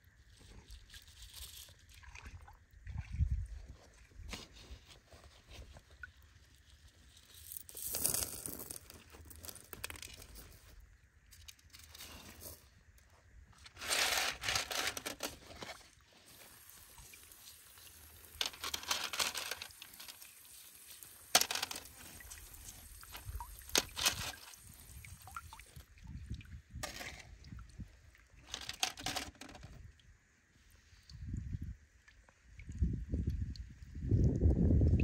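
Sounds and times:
pebbles clattering on metal sieve: 7.0s - 10.7s, 13.7s - 25.2s, 26.8s - 27.2s, 28.4s - 29.8s.

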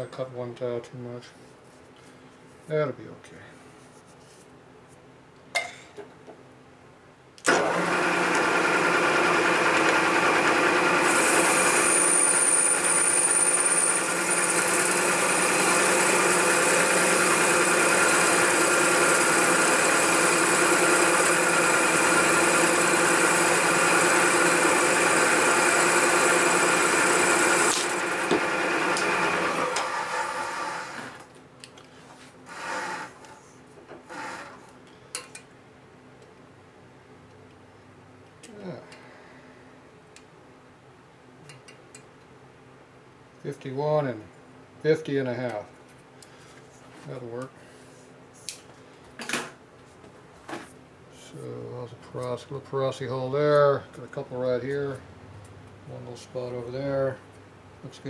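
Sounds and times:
milling machine spindle humming: 7.5s - 31.1s.

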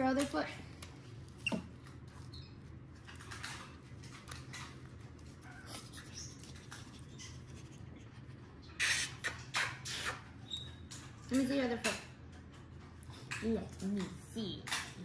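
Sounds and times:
low room hum: 0.0s - 15.0s
paper rustling and crinkling: 0.1s - 7.9s
monkey squeaks: 8.7s - 10.9s.

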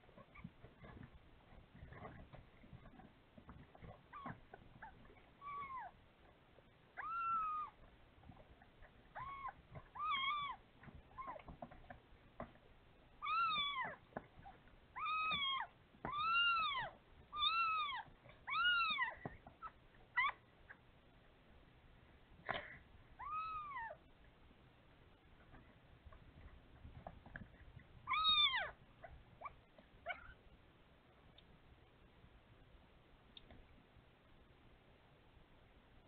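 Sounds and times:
cat meowing: 7.0s - 7.8s, 9.2s - 11.4s, 15.0s - 19.2s, 23.2s - 24.0s, 28.1s - 28.8s.

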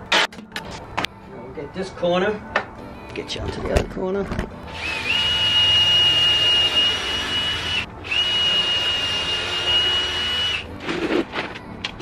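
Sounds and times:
power drill driving screws: 4.8s - 10.6s.

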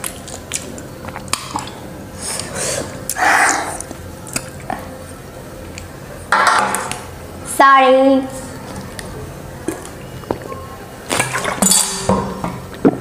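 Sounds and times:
person slurping soup: 2.2s - 3.8s.

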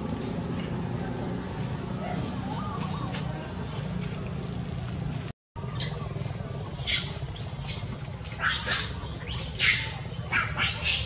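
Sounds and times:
baby monkey squealing calls: 5.7s - 11.0s.

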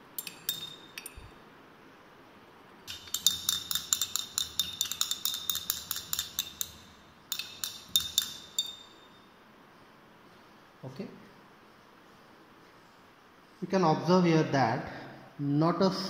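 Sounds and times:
glass rod clinking in flask: 0.1s - 1.4s, 2.9s - 9.3s.

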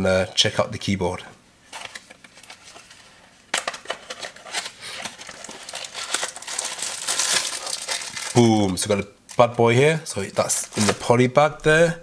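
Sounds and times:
packaging handling: 1.7s - 9.4s, 10.2s - 11.8s
plastic bag crinkling: 3.6s - 9.4s, 10.4s - 11.2s.

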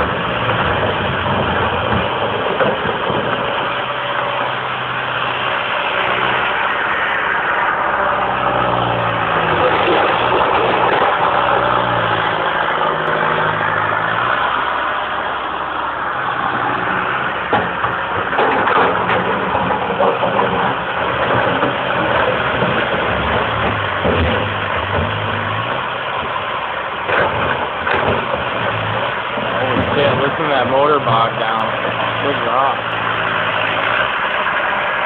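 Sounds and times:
excavator diesel engine: 0.0s - 35.0s.

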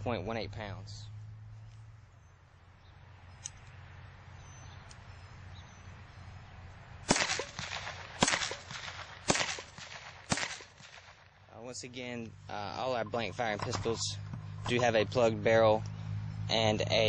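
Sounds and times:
blank pistol shots with echo: 7.1s - 11.3s.

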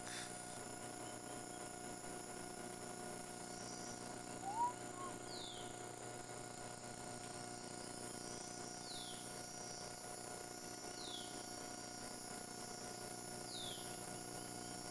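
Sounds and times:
faint electrical hum: 0.0s - 14.9s
rising two-note bird call: 4.4s - 5.2s
bird whistle sliding downward: 4.4s - 5.5s.

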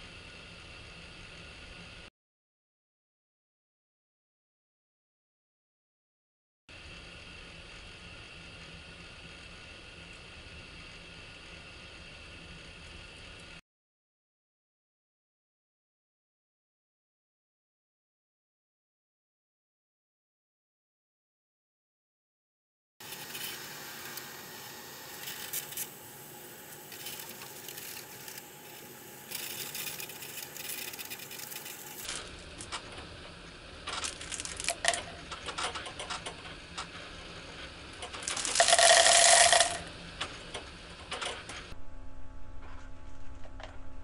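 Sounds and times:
robot arm motors whirring: 23.0s - 33.1s
rattling pouring stream: 25.1s - 32.2s, 38.2s - 39.8s.

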